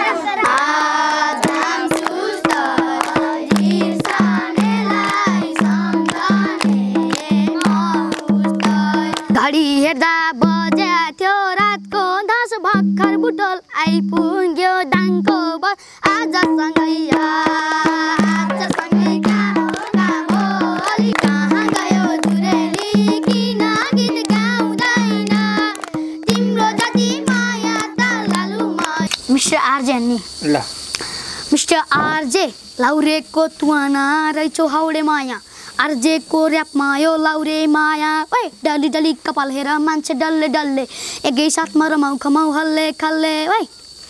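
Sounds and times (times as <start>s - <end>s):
children singing a folk song: 0.0s - 29.9s, 31.6s - 43.5s
rapid hand-clapping: 0.4s - 9.4s, 17.1s - 29.2s
low drum beat: 1.4s - 9.7s, 16.1s - 29.1s.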